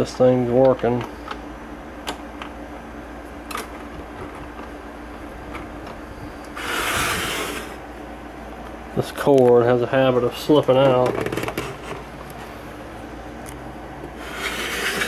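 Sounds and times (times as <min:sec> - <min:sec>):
hand rubbing plastic cabinet: 0:06.6 - 0:07.8, 0:14.2 - 0:15.0.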